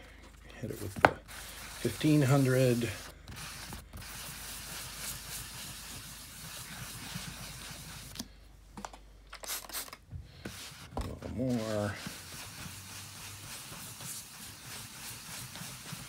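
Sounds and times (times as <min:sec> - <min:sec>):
sponge sanding scratchy scrubbing: 0:00.6 - 0:08.1, 0:10.5 - 0:16.0.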